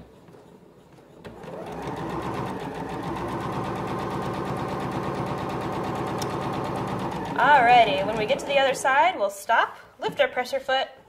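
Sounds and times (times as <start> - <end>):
sewing machine running: 1.3 - 8.8.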